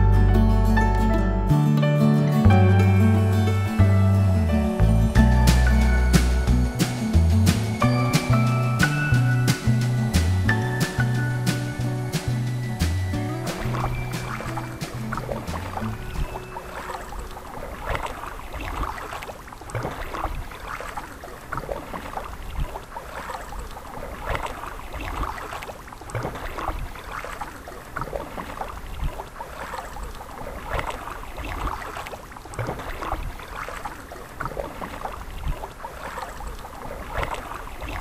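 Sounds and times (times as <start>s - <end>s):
kayak paddle splashing in water: 5.5s - 38.0s.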